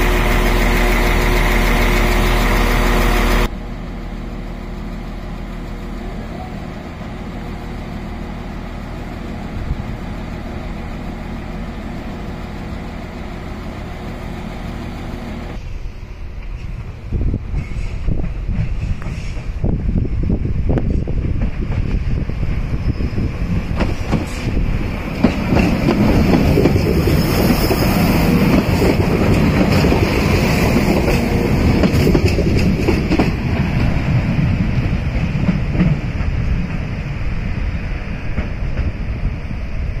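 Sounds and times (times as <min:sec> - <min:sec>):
passenger train passing: 0:00.0 - 0:40.0
train wheel clicks: 0:23.7 - 0:33.9.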